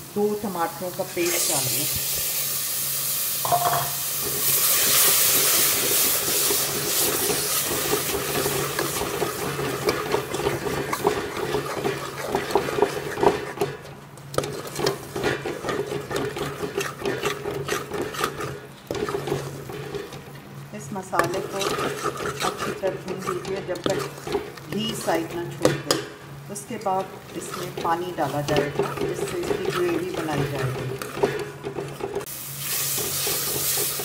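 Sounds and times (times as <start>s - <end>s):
tomato paste sizzling: 0.0s - 34.0s
spoon scraping metal pot: 6.2s - 13.8s, 14.4s - 20.2s, 21.0s - 32.3s.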